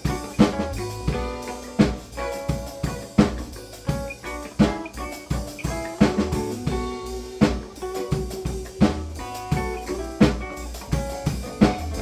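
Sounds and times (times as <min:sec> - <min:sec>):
bass and melodic notes: 0:00.0 - 0:12.0
drum kit backbeat: 0:00.0 - 0:12.0.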